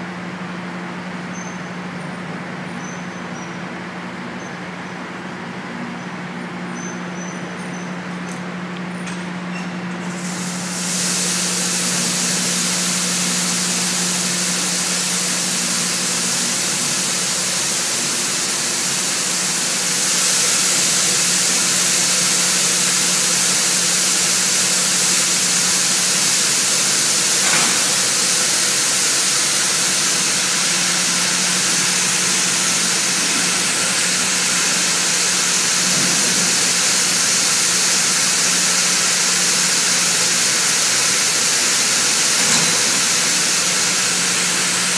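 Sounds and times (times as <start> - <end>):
machinery hiss: 9.9 - 44.9.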